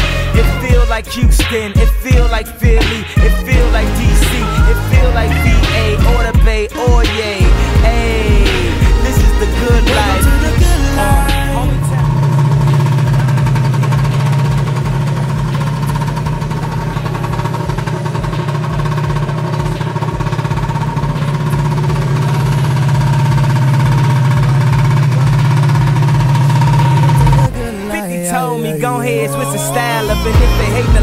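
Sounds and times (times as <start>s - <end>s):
scooter engine idling: 7.4s - 27.7s, 30.0s - 31.0s.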